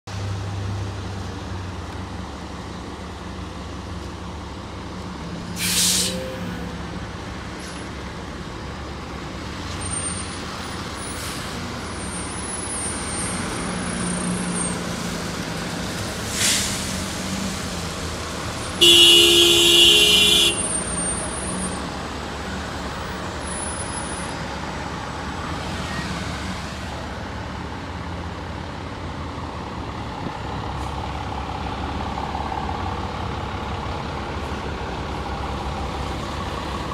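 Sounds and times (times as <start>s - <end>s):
diesel bus engine running: 0.1s - 36.9s
short air hisses: 5.6s - 6.4s, 16.2s - 17.3s
horn honking: 18.8s - 21.0s.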